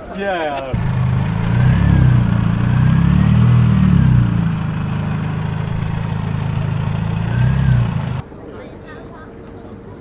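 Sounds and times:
car engine idling: 0.8 - 8.2
engine throttle blip: 0.8 - 8.2.

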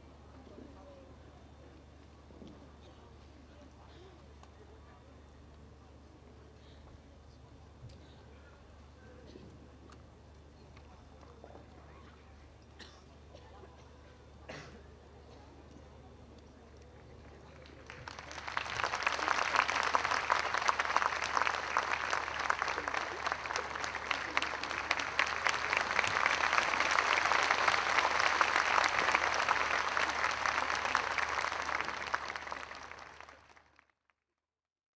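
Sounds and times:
audience applauding: 17.7 - 33.9.

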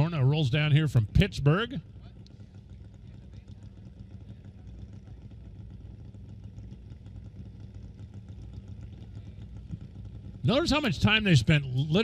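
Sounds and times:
motorcycles idling: 0.0 - 12.0.

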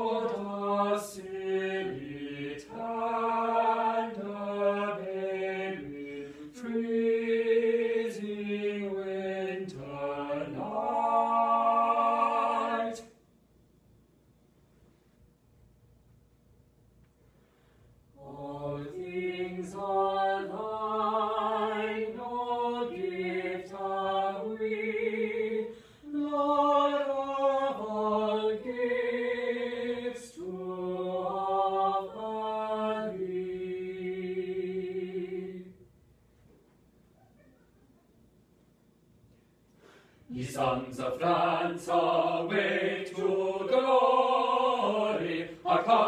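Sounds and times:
choir singing: 0.0 - 13.2, 18.2 - 35.8, 40.3 - 46.0.

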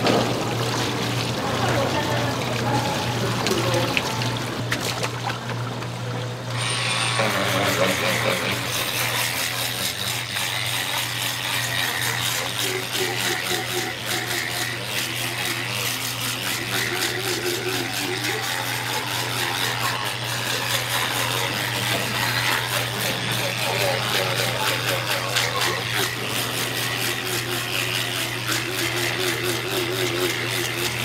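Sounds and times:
fish scaler rasping: 6.4 - 31.0.

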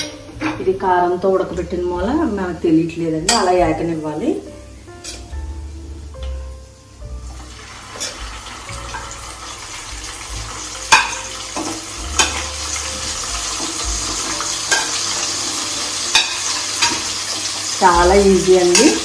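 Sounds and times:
chicken sizzling in hot oil: 4.8 - 19.0
spoon clinking against pan: 16.1 - 17.0.

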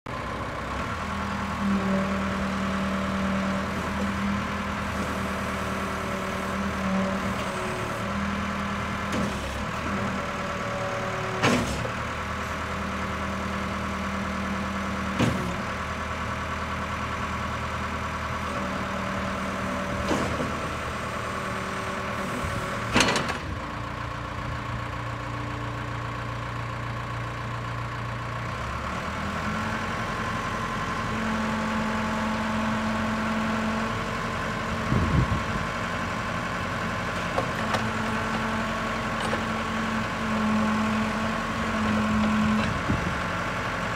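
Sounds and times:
diesel engine running: 0.1 - 43.9
metal clunks: 22.8 - 23.5.

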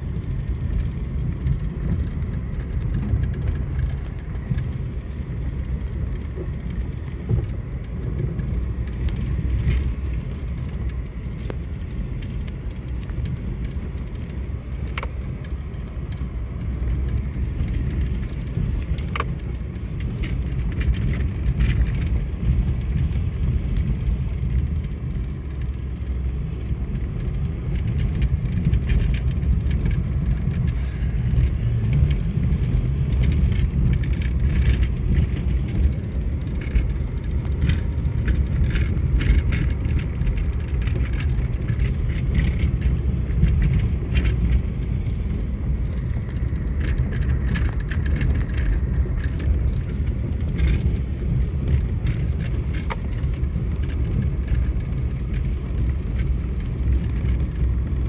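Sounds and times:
light rattles and clicks: 0.0 - 58.0
wind and road rumble: 0.0 - 58.0.

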